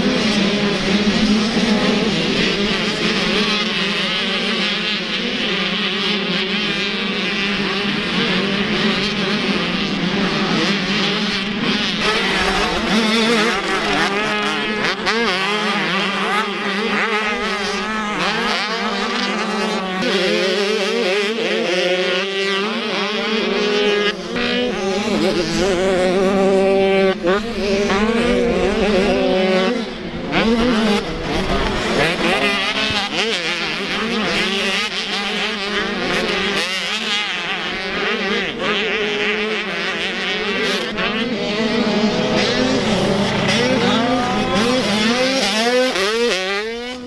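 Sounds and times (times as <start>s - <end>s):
motocross bikes revving: 0.0s - 47.0s.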